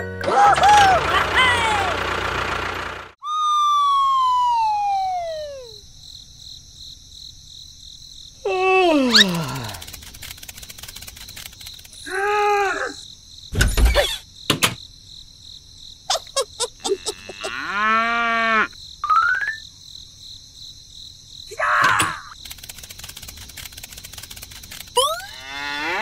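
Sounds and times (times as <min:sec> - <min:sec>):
high insect chirring: 0:09.0 - 0:26.0
sharp clicks: 0:09.3 - 0:12.1, 0:22.3 - 0:25.2
drawn-out rising and falling calls: 0:16.1 - 0:17.8.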